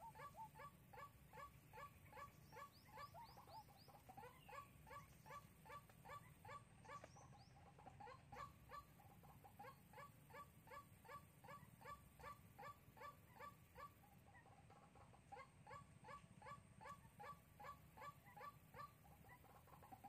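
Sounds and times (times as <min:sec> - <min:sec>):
waterhen calling: 0:00.0 - 0:10.1.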